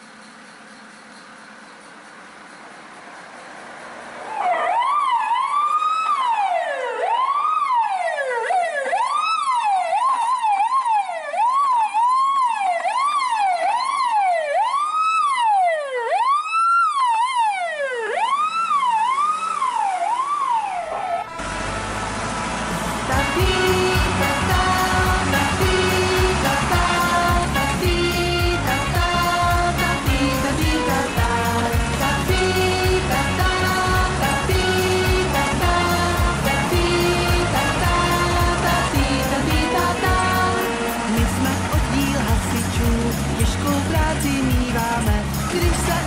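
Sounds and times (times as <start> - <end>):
fire truck siren wailing: 3.6 - 46.0
music: 22.8 - 46.0.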